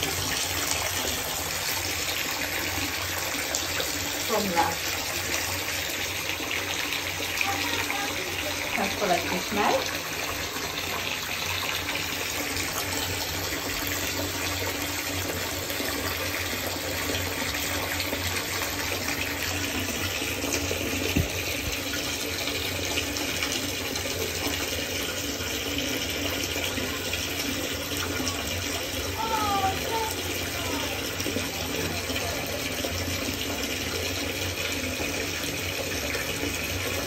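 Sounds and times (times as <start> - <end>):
bath tap running: 0.0 - 37.0.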